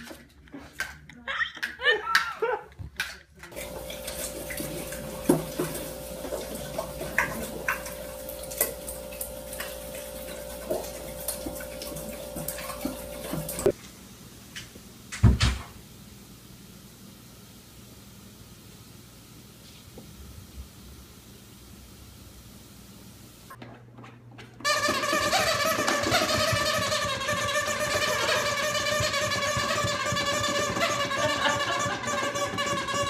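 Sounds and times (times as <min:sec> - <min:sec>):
steady hum and hiss: 0:03.5 - 0:23.6.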